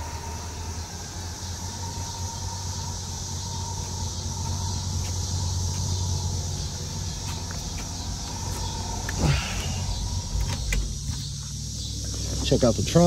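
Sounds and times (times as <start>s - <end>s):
car engine idling: 0.0s - 13.0s
trunk lid creak and thump: 9.8s - 11.5s.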